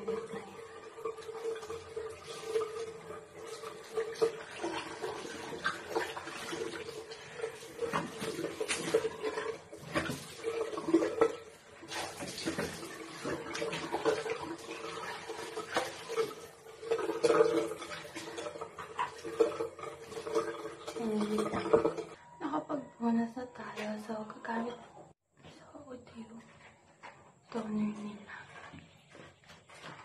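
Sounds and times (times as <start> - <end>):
water splashing at sink: 0.0 - 22.2.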